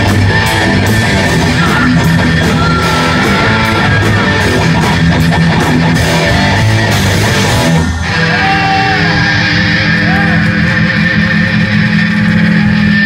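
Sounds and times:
metal band playing: 0.0s - 13.0s
high feedback tone: 1.3s - 5.0s.

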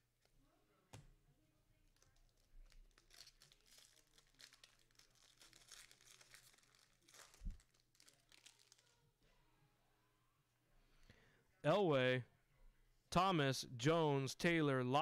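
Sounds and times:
wrapper crinkling and tearing: 1.9s - 9.0s.

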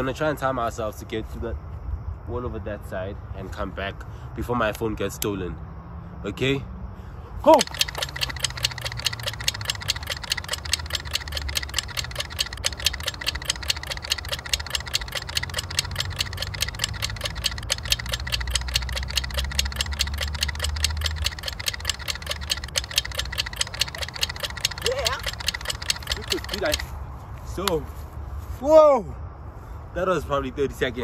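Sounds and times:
fast even ticking: 7.5s - 26.9s.

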